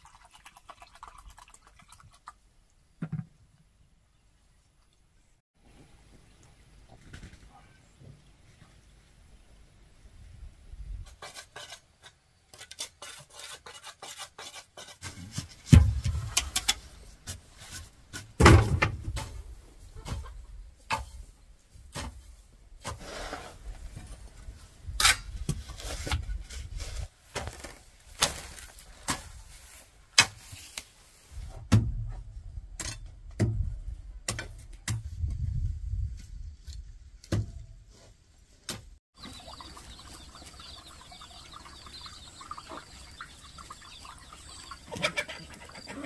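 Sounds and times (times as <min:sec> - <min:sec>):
hoe and shovel digging soil: 0:11.0 - 0:33.6
hen and chicks chirping: 0:39.2 - 0:46.0.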